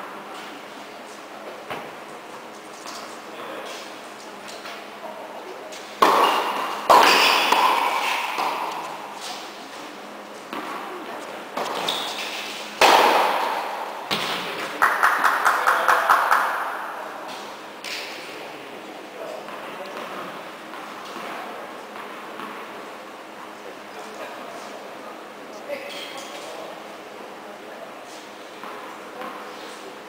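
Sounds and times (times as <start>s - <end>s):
tennis balls struck by rackets: 6.0s - 9.5s, 11.6s - 14.7s.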